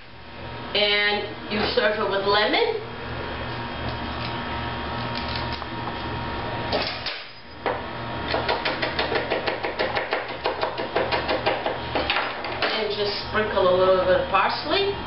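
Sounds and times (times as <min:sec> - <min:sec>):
knife chopping on cutting board: 0:08.3 - 0:12.7.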